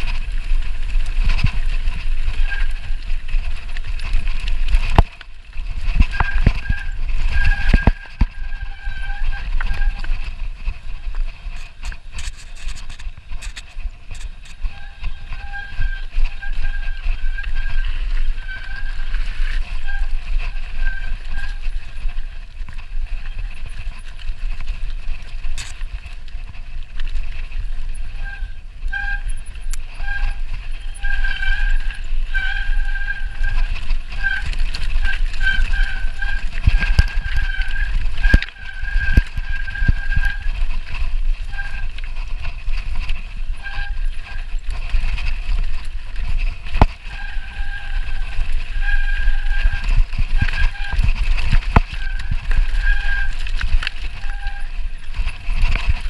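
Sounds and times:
bike rattling over stones: 0:00.0 - 0:56.0
wind rumble on microphone: 0:00.0 - 0:56.0
pitched squeal: 0:05.8 - 0:22.3, 0:27.9 - 0:45.6, 0:46.2 - 0:56.0.

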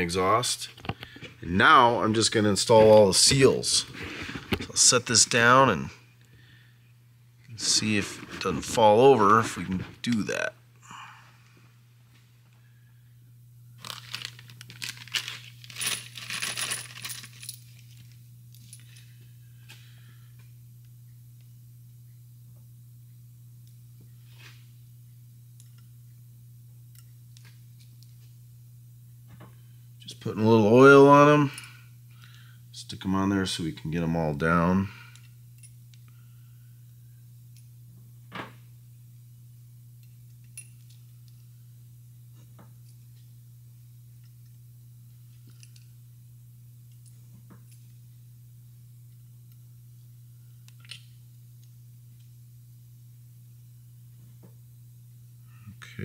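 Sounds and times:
steady low hum: 0:00.0 - 0:56.0
small metal parts clinking: 0:13.8 - 0:19.0.

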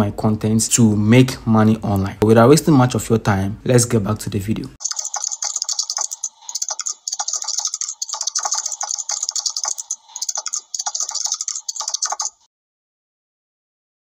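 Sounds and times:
keyboard typing clicks: 0:04.8 - 0:12.4.

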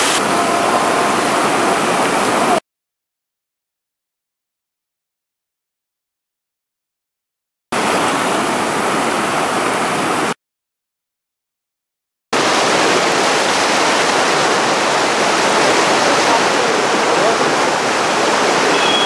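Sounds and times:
whitewater rapids rushing: 0:00.0 - 0:02.6, 0:12.4 - 0:19.0.

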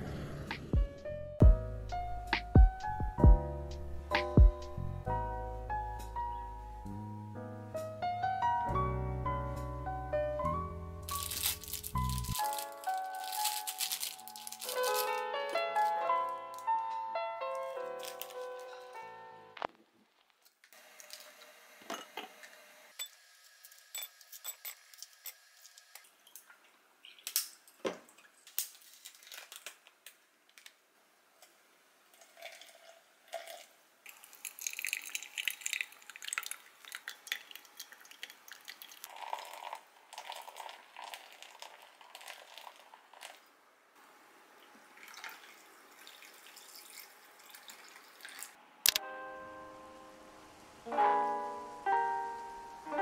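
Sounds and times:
water pouring and splashing: 0:11.1 - 0:15.1, 0:32.1 - 0:43.4, 0:45.0 - 0:48.6
coffee pouring into glass: 0:32.1 - 0:43.4, 0:45.0 - 0:48.5.

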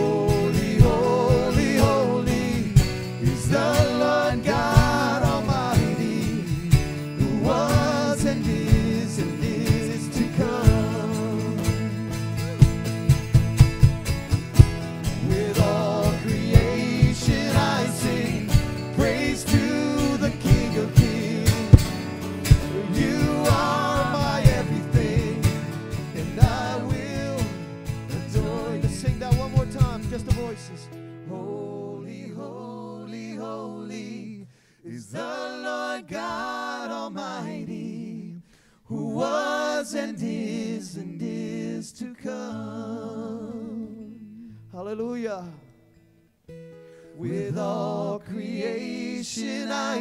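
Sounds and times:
person singing: 0:00.0 - 0:12.8, 0:15.2 - 0:30.6
worship band playing: 0:00.0 - 0:33.8.

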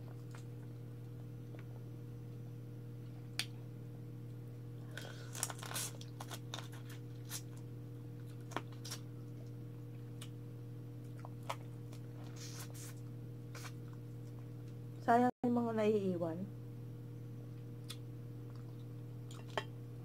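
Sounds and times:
chewing and finger-sucking: 0:00.0 - 0:01.7, 0:04.2 - 0:10.4, 0:11.0 - 0:14.8, 0:17.5 - 0:19.8
steady low hum: 0:00.0 - 0:20.0.

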